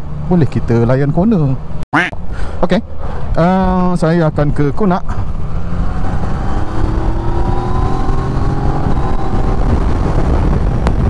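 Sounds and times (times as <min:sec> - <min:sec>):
wind rumble on microphone: 0:05.1 - 0:11.0
motorcycle engine accelerating: 0:05.2 - 0:11.0.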